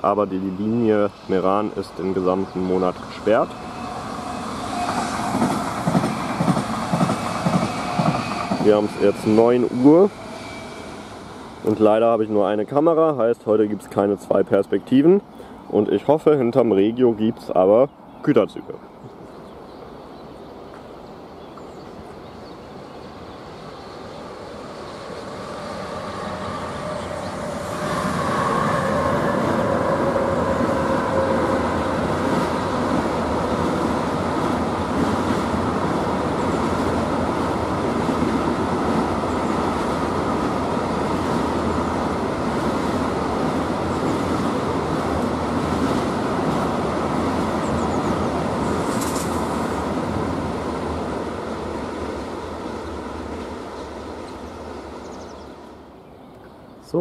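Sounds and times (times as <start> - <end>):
freight train passing: 0.0 - 57.0
train whining tone: 1.9 - 13.0, 24.3 - 50.6.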